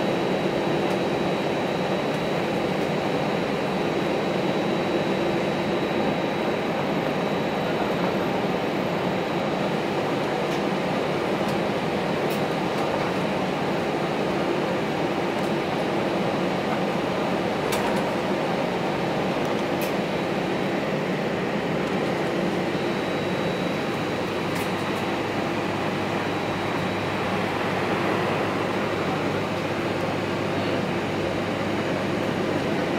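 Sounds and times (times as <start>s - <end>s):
jet engine and air-conditioning rush: 0.0s - 32.9s
high whine: 16.6s - 32.7s.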